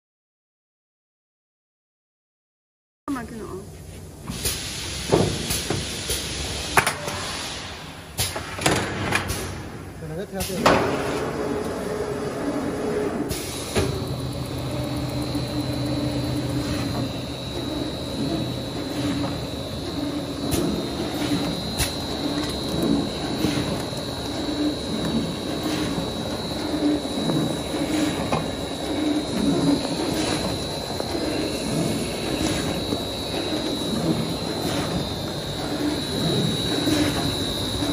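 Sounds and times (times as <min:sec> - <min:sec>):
machine hiss and hum: 0:03.1 - 0:37.9
low repeating pulse: 0:13.8 - 0:37.9.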